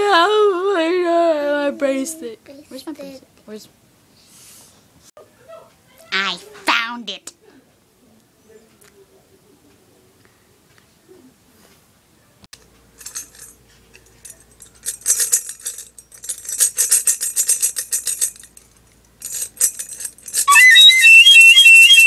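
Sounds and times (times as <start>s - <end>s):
toy tambourine jingling: 12.9s - 22.0s
shrill toy flute notes: 20.5s - 22.0s.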